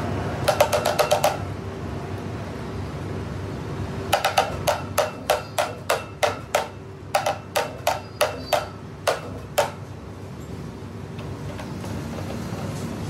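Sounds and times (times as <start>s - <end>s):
steady machine hum: 0.0s - 13.0s
sharp knocks: 0.4s - 1.5s, 4.1s - 9.9s.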